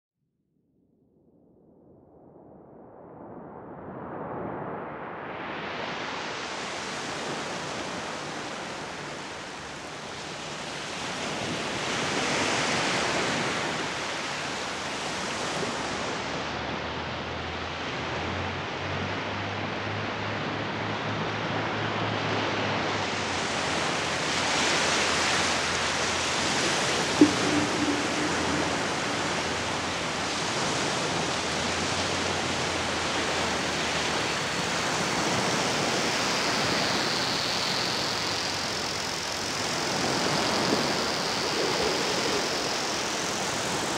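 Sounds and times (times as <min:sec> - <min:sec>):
surf breaking on beach: 0:23.0 - 0:43.9.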